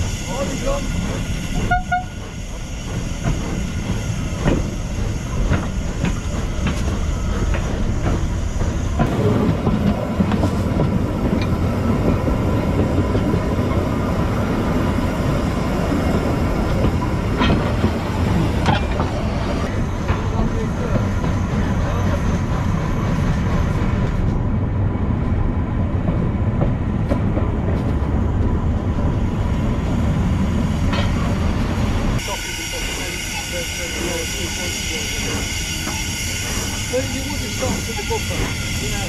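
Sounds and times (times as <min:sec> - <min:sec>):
train wheels on rails: 0:00.0 - 0:39.0
steam locomotive exhaust: 0:32.1 - 0:39.0.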